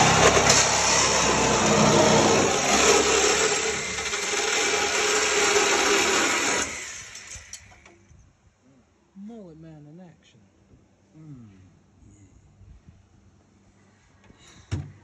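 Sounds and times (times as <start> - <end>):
reciprocating saw cutting sheet steel: 0.0 - 7.7.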